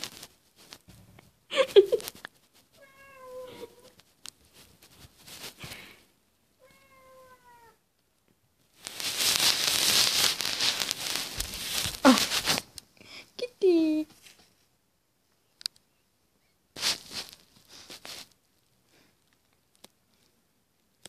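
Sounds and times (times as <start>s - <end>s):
cat meowing: 2.8s - 3.9s, 6.6s - 7.8s
loud rustling: 8.8s - 12.7s, 16.8s - 18.3s.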